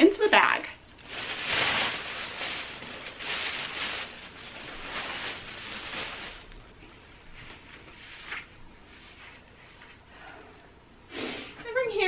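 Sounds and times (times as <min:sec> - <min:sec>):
bag rustling: 0:01.0 - 0:06.6.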